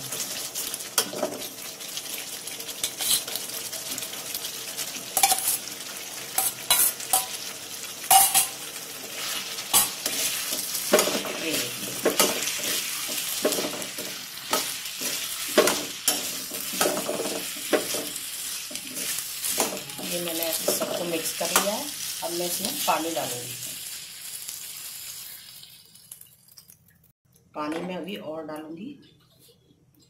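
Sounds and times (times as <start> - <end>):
frying sizzle: 0.0 - 27.1
ladle clinking and scraping on pan: 2.8 - 3.4, 5.2 - 5.7, 6.3 - 21.7.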